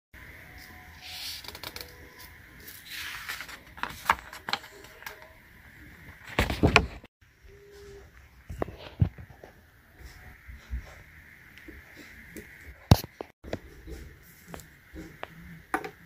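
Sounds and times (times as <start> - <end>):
paper rustling: 1.0 - 5.3, 6.1 - 7.1.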